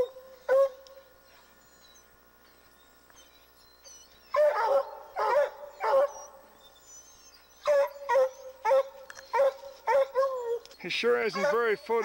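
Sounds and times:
hounds barking: 0:00.0 - 0:00.9, 0:03.8 - 0:12.0.

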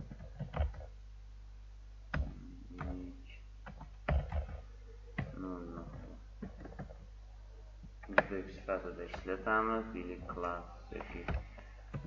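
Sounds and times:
low electrical hum: 0:00.0 - 0:12.0
murmured vocal sounds: 0:04.6 - 0:06.3, 0:07.6 - 0:12.0.

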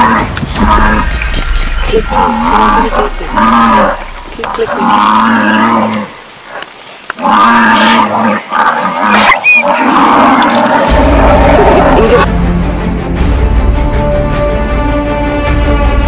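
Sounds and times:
buffalo bellowing: 0:00.0 - 0:12.3.

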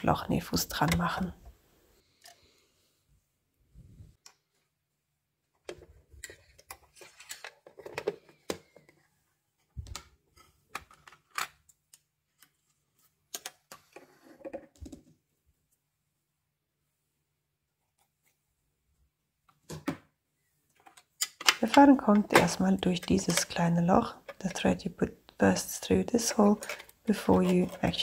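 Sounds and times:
small plastic and metal parts rattling: 0:05.7 - 0:09.0, 0:26.5 - 0:28.0.

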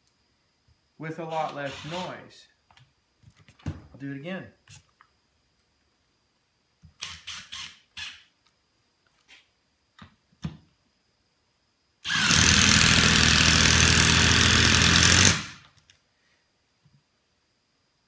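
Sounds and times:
hydraulic driver running: 0:12.1 - 0:15.6
impact driver hammering: 0:12.1 - 0:15.6.

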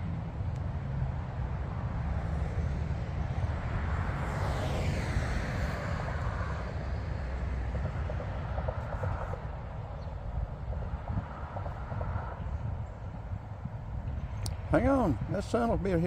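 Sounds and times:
vehicle passing by: 0:00.0 - 0:16.0
steady low rumble: 0:05.4 - 0:16.0.

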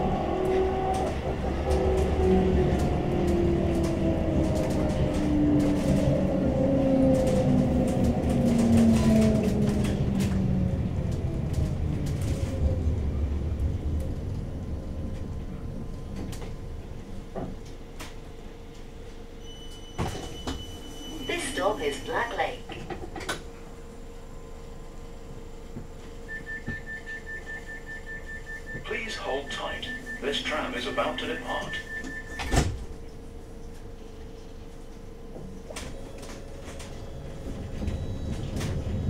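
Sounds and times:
tram motors whining: 0:00.0 - 0:39.0
beep: 0:26.3 - 0:32.6.

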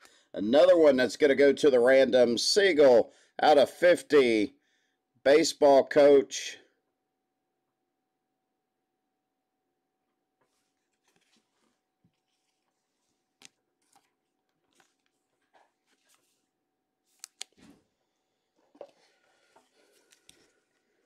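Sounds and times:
plastic card sleeve rustling and clicking: 0:13.4 - 0:16.4, 0:17.1 - 0:17.7.

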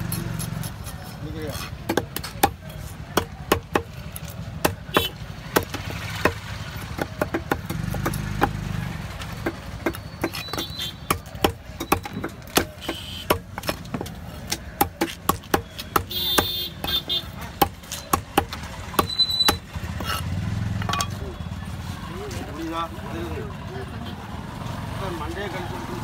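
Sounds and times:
knife chopping on wooden block: 0:00.1 - 0:20.2.

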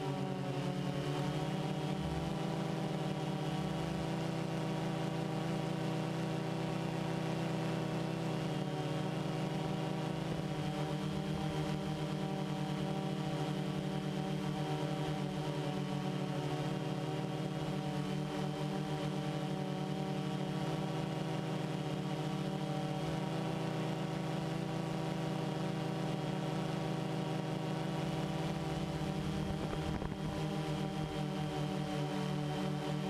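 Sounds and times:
drone motors humming: 0:24.4 - 0:33.0.

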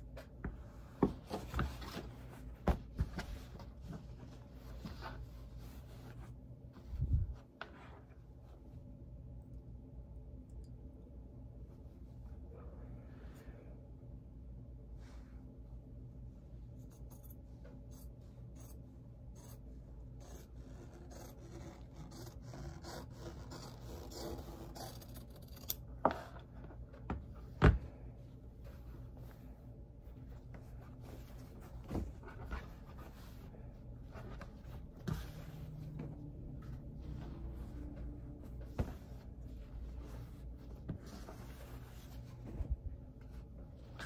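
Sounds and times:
cloth rustling and sliding: 0:00.6 - 0:08.7, 0:28.4 - 0:44.0.

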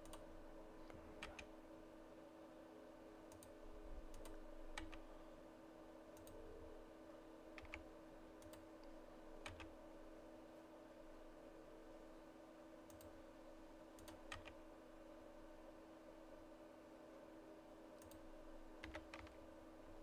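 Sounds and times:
low electrical hum: 0:00.0 - 0:20.0
mouse and keyboard clicks: 0:07.6 - 0:07.8, 0:18.8 - 0:19.4.

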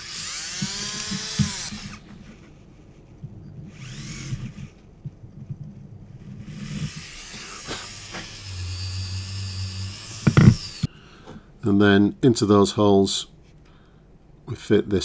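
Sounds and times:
small motor tool whining: 0:00.0 - 0:02.6, 0:03.6 - 0:04.9, 0:06.2 - 0:10.9.

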